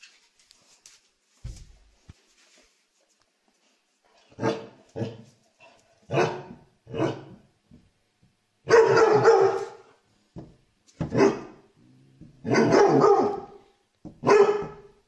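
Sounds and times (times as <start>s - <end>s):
dog barking: 4.4s - 5.2s, 6.1s - 7.4s, 8.7s - 10.0s, 11.0s - 11.6s, 12.4s - 15.0s.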